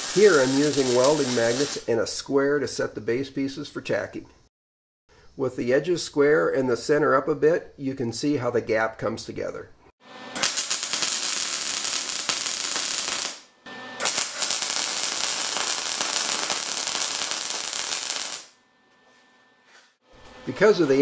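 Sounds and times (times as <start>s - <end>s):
welding arc crackling: 0.0s - 1.8s, 10.3s - 18.6s.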